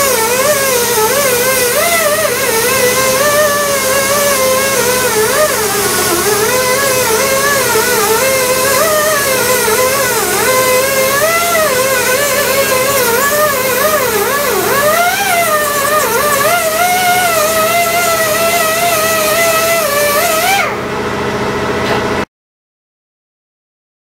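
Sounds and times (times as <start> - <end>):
die grinder whining: 0.0 - 22.2.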